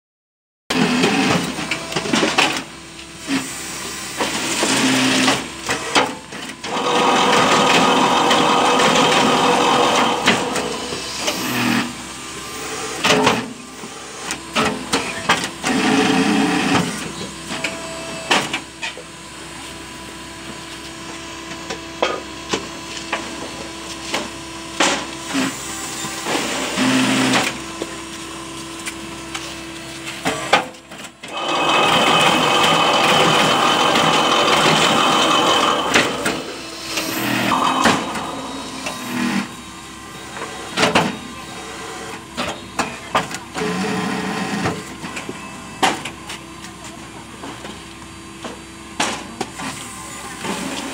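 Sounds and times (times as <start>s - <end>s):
hydraulic machine hum: 0.7s - 18.2s, 30.0s - 42.4s.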